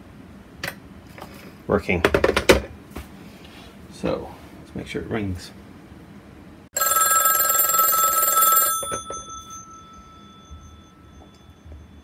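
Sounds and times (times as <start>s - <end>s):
telephone bell ringing: 6.8s - 12.0s.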